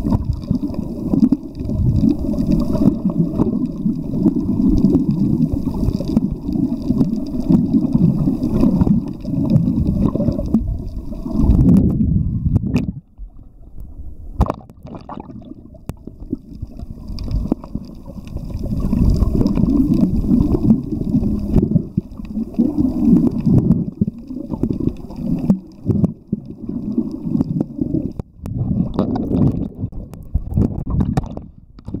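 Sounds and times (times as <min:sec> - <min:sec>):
muffled underwater rumble: 0:00.0 - 0:32.0
water gurgling: 0:00.0 - 0:32.0.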